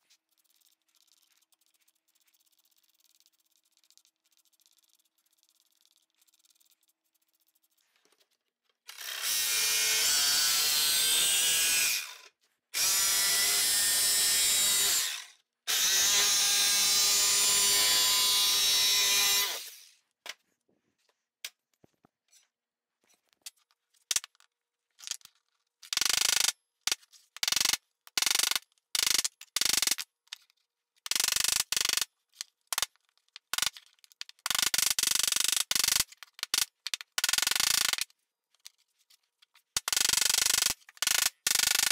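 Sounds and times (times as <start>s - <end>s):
jigsaw cutting sheet steel: 8.9s - 20.0s, 40.2s - 41.9s.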